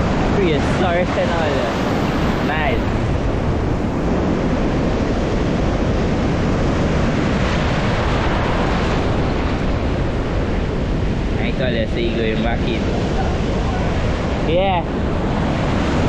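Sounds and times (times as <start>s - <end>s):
surf washing over sand: 0.0s - 16.0s
wind rumbling on microphone: 0.0s - 16.0s.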